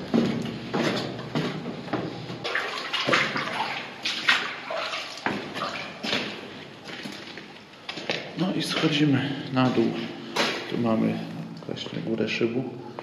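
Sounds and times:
footsteps scuffing on concrete stairs: 0.0s - 2.4s, 5.2s - 9.0s.

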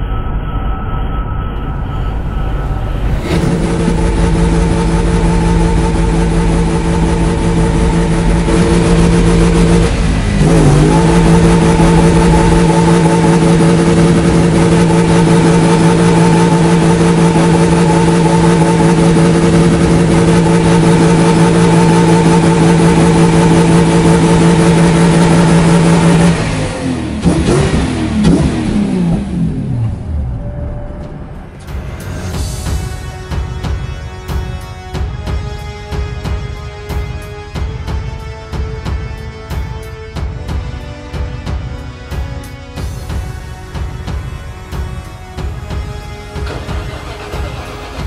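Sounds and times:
engine revving high: 3.2s - 30.3s, 46.3s - 48.0s.

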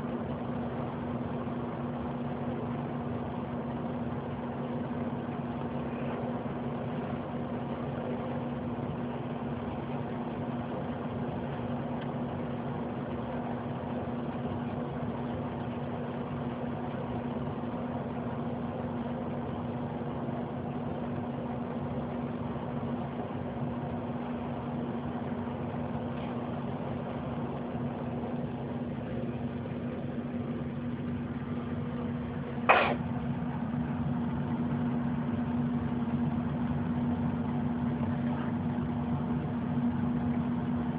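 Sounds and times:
sharp knock: 32.7s - 33.0s.

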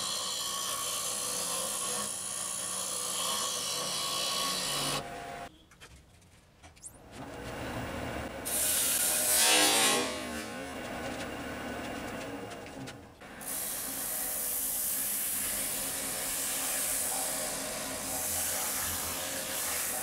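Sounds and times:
wood lathe humming: 0.0s - 5.5s, 7.2s - 20.0s
tool rubbing spinning wood: 7.0s - 14.0s.

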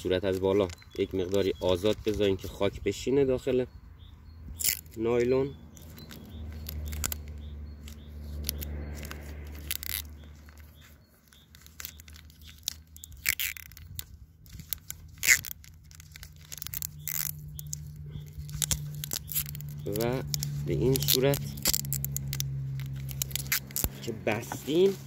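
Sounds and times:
plastic sheet crinkling: 0.0s - 2.6s, 5.7s - 25.0s
tape pulled off a roll: 7.8s - 25.0s.

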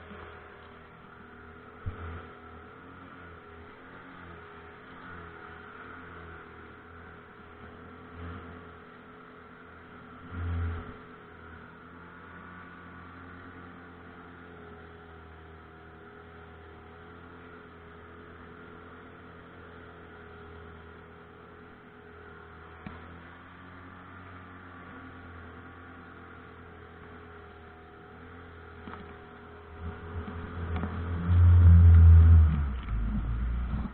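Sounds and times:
outboard motor humming: 0.0s - 33.9s
short low thump: 30.0s - 33.9s.

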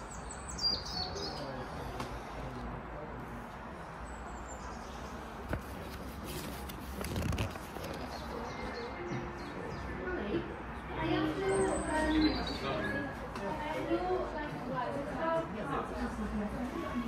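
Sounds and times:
bird chirping: 0.0s - 1.6s
voices in background: 0.3s - 17.0s.

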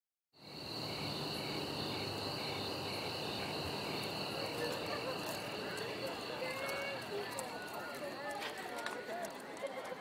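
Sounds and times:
insects chirping: 0.4s - 8.2s.

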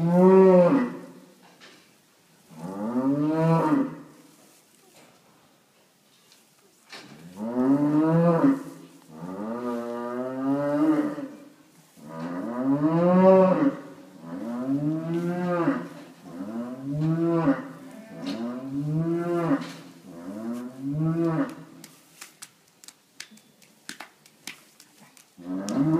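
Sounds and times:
cow mooing: 12.2s - 21.5s.

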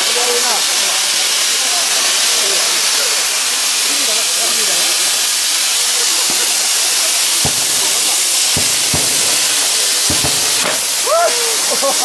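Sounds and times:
fireworks spraying with loud hiss: 0.0s - 12.0s
sharp firework pops: 7.3s - 11.3s.

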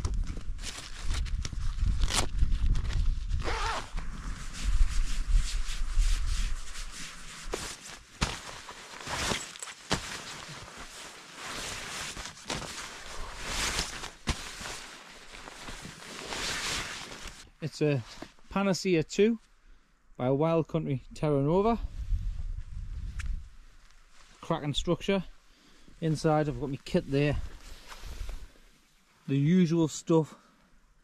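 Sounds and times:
tent fabric rustling: 0.2s - 18.5s, 25.6s - 28.7s.

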